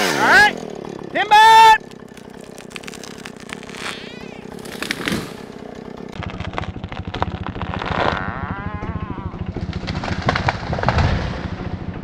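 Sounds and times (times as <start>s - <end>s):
chainsaw idling: 0.0s - 12.0s.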